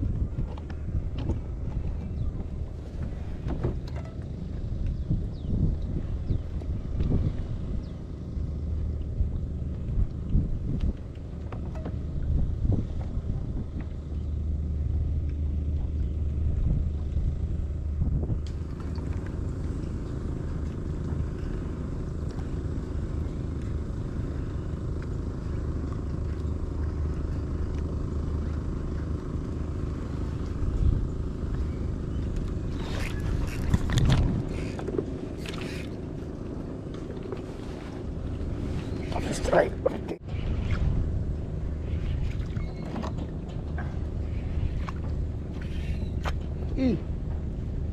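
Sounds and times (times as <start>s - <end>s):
wind buffeting microphone: 0.0s - 18.7s, 24.8s - 36.0s.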